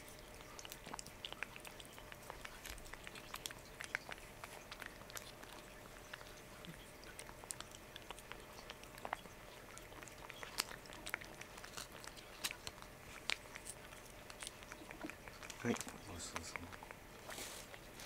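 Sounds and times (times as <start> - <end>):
cat licking with wet smacks: 0.0 - 18.0.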